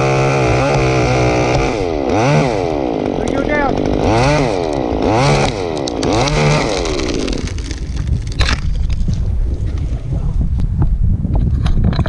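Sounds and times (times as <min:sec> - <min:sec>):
chainsaw revving: 0:00.0 - 0:08.0
wind rumble on microphone: 0:06.0 - 0:12.0.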